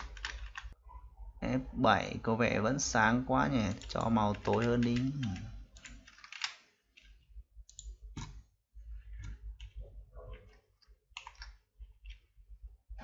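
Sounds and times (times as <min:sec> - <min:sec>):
computer mouse clicks: 0:07.7 - 0:08.4.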